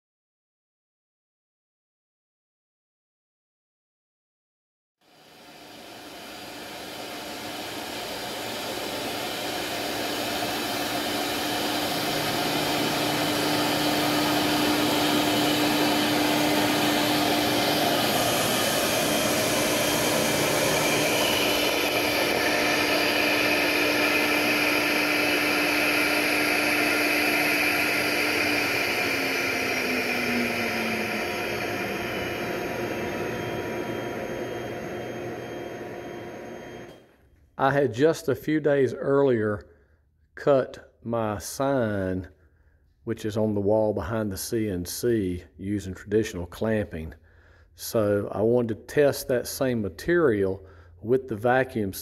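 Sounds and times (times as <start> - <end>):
router spindle running: 5.3 - 37.0
dust collector suction: 5.5 - 37.0.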